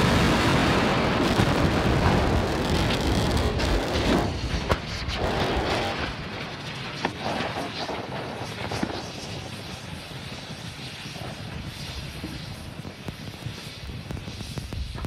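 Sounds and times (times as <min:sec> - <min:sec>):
roar of burning wreckage: 0:00.0 - 0:09.4
sharp cracks: 0:00.8 - 0:06.3.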